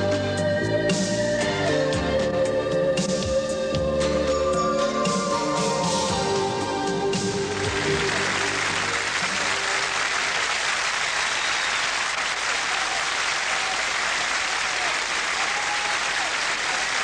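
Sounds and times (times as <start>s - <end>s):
studio audience applauding: 7.2s - 17.0s.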